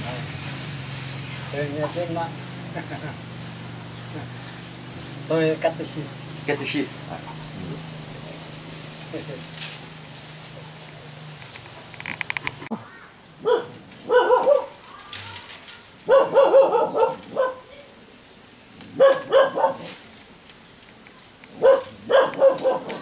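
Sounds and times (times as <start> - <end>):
dog barking: 13.4 - 14.8, 16.1 - 17.7, 19.0 - 20.0, 21.6 - 23.0.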